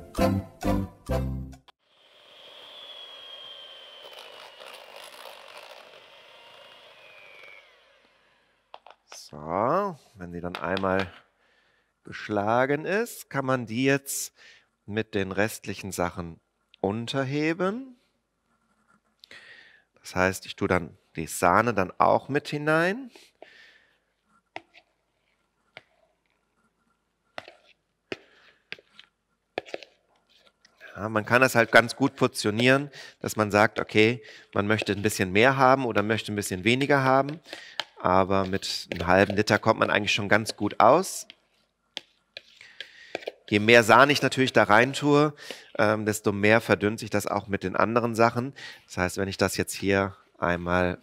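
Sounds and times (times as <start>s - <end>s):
electric hand mixer whining: 1.8s - 8.9s.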